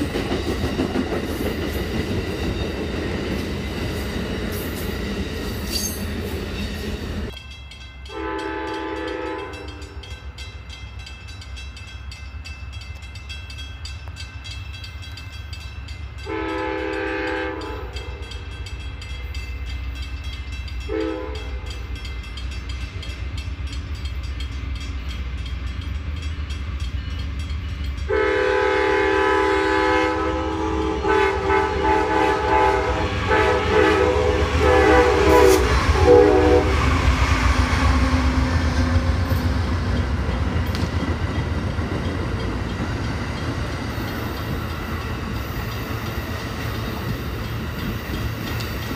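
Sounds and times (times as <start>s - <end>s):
low rumble of approaching train: 0.0s - 48.9s
passenger train rolling past: 0.0s - 48.9s
locomotive air horn blasts: 8.1s - 10.0s, 16.2s - 18.2s, 20.9s - 21.7s, 28.1s - 37.0s.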